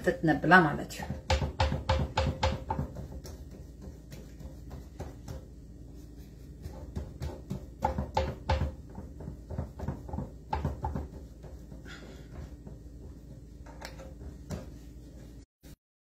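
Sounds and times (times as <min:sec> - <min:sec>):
hands pressing pizza dough: 0:00.9 - 0:15.4
pan knocking on worktop: 0:01.0 - 0:05.5, 0:06.7 - 0:11.7.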